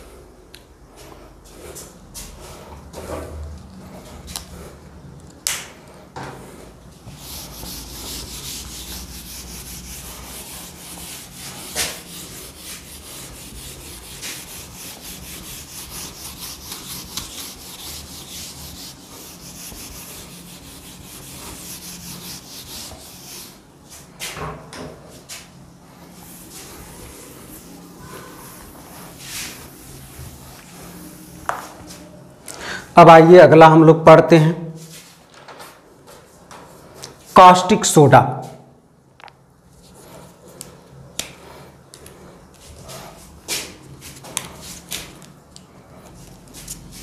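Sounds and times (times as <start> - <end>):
duster rubbing whiteboard: 0.9 - 4.8, 6.2 - 24.4, 25.1 - 32.1, 39.8 - 45.3, 46.0 - 47.0.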